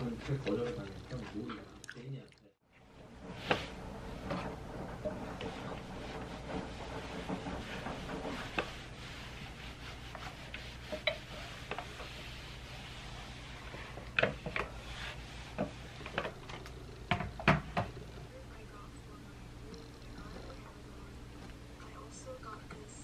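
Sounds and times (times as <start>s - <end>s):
steady low hum: 2.9s - 23.0s
iron sliding over fabric: 3.0s - 18.4s
hands smoothing fabric: 3.2s - 16.5s.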